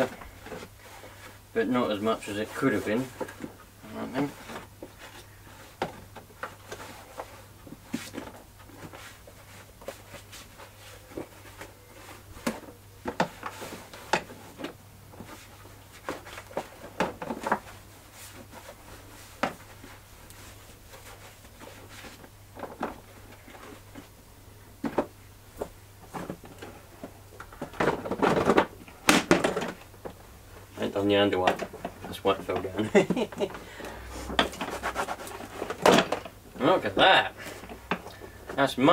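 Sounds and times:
plastic knocks and clatter: 0:12.4 - 0:17.8, 0:21.6 - 0:24.1, 0:24.8 - 0:30.2, 0:31.4 - 0:33.6, 0:34.3 - 0:36.4
cloth wiping plastic: 0:32.1 - 0:35.8.

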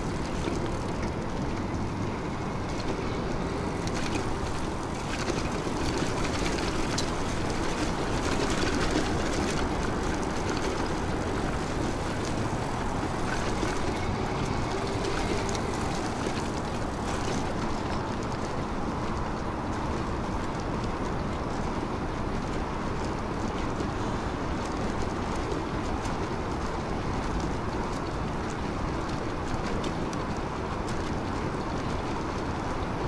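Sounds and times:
bike tyre noise: 0:00.0 - 0:18.5
wind rush: 0:00.0 - 0:20.4.

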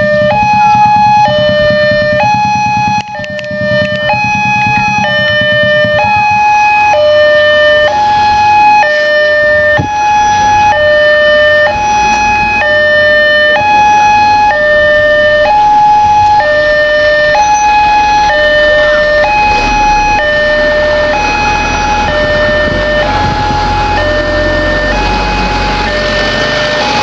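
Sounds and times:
level-crossing two-tone alarm: 0:00.0 - 0:27.0
low rumble: 0:09.6 - 0:27.0.

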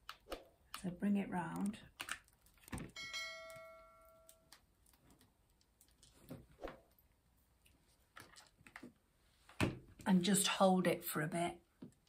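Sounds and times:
bell-like notification chime: 0:03.0 - 0:04.3.

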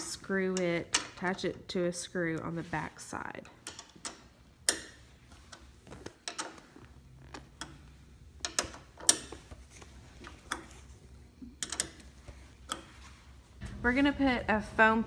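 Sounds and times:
metal hardware clicks: 0:03.4 - 0:06.6, 0:08.4 - 0:09.4, 0:11.5 - 0:13.0.

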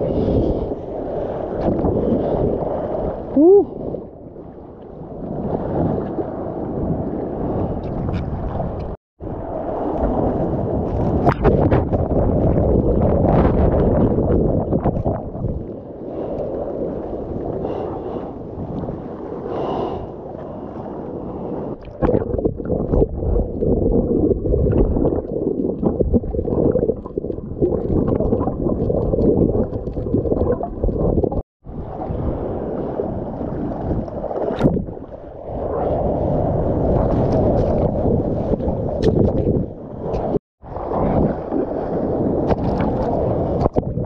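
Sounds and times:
underwater churning and gurgling: 0:00.0 - 0:44.0.

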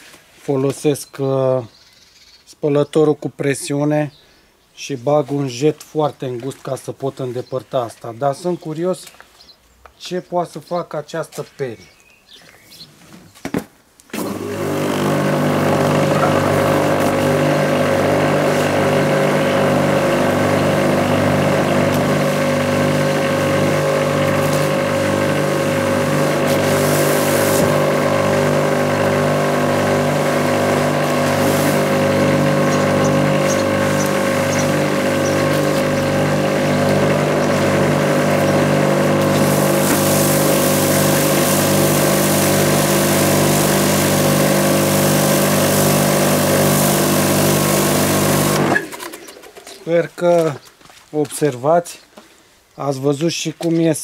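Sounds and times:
pressure washer motor running: 0:14.2 - 0:49.8
water spray hissing: 0:14.9 - 0:48.8.

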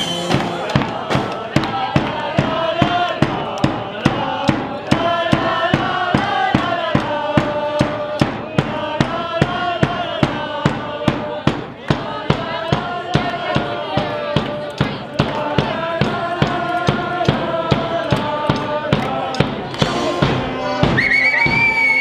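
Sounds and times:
brass band playing upbeat tune: 0:00.0 - 0:01.5, 0:19.6 - 0:22.0
drum and cymbal hits: 0:00.0 - 0:22.0
voices singing along: 0:00.0 - 0:22.0.

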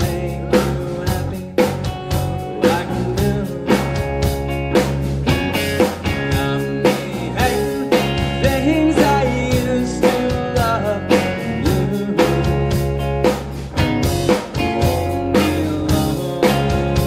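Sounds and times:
drum kit beat: 0:00.0 - 0:17.0
electric guitar: 0:00.0 - 0:17.0
keyboard: 0:00.0 - 0:17.0.

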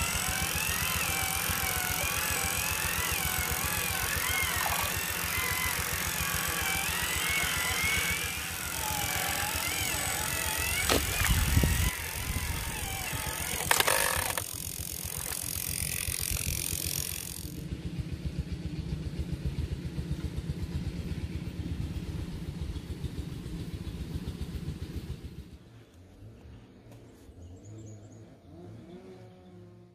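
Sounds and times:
toy truck motor rattling: 0:00.0 - 0:17.7.

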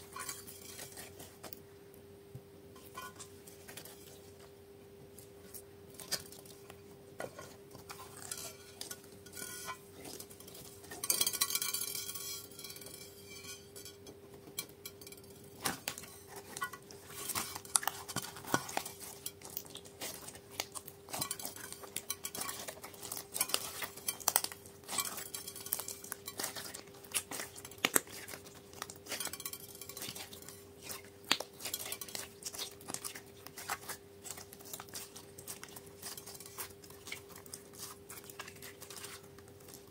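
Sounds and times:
crackling slime stretch: 0:15.6 - 0:39.9.

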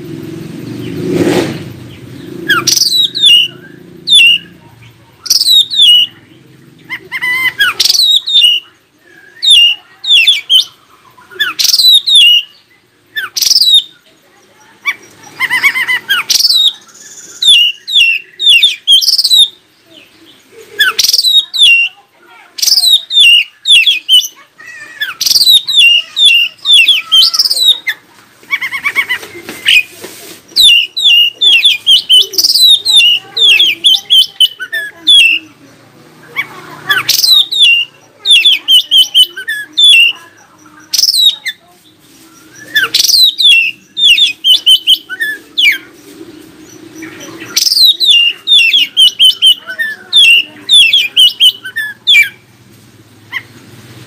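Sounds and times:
bird singing whistled notes: 0:01.9 - 0:04.6, 0:05.2 - 0:06.2, 0:07.2 - 0:14.0, 0:15.5 - 0:19.6, 0:22.6 - 0:24.4, 0:30.5 - 0:35.4, 0:40.8 - 0:41.6, 0:42.2 - 0:45.9, 0:46.7 - 0:52.4.

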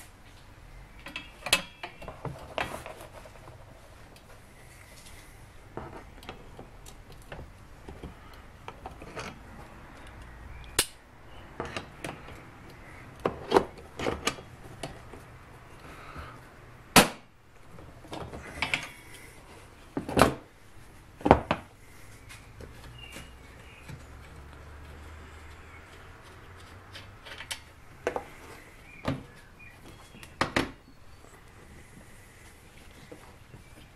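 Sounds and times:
metal clicks and knocks from tools: 0:01.0 - 0:02.7, 0:26.2 - 0:28.3.

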